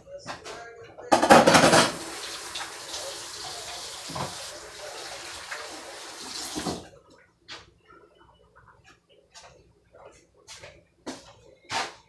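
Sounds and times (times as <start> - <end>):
sink tap running: 1.5 - 6.8.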